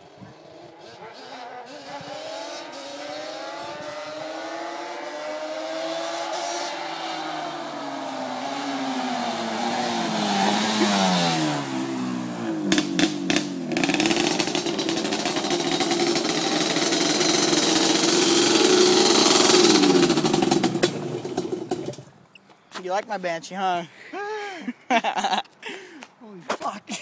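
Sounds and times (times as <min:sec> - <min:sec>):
two-stroke engine revving: 0:00.4 - 0:22.1
sharp exhaust cracks: 0:09.2 - 0:22.2.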